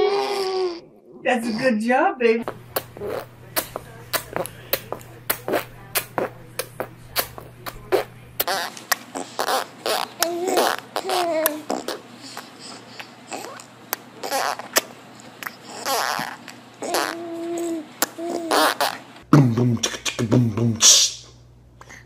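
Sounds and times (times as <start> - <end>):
baby vocal sounds: 0.0 - 1.7, 2.4 - 19.1
baby blowing raspberries: 2.4 - 19.0.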